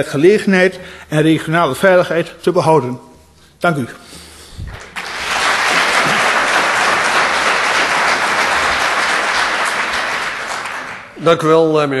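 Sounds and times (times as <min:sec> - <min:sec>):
audience applauding: 0:04.7 - 0:11.2.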